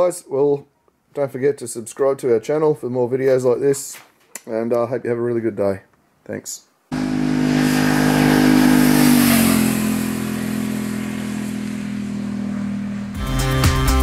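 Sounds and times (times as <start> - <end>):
motorcycle passing by: 6.9 - 14.0
music: 13.2 - 14.0.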